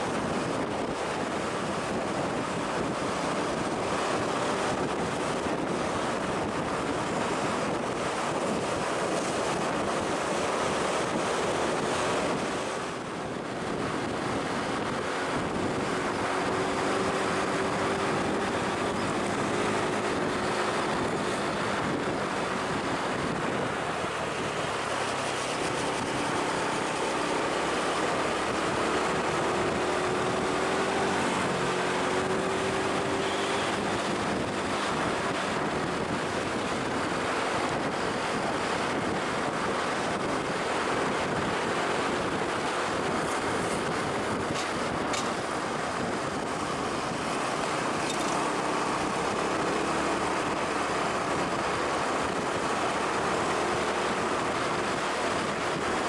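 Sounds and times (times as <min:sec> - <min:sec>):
large vehicle engine running: 0:00.0 - 0:56.0
wind noise on microphone: 0:00.0 - 0:56.0.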